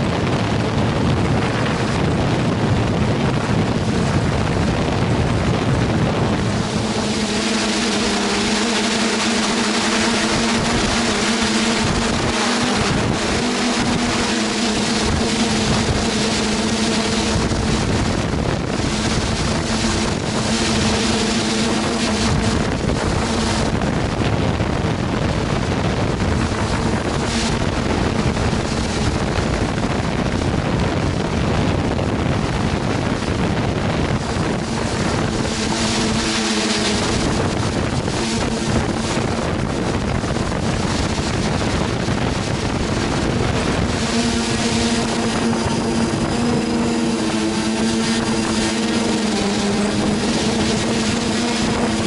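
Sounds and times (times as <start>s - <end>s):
drone motors humming: 0.0s - 52.0s
wind rushing over microphone: 0.0s - 52.0s.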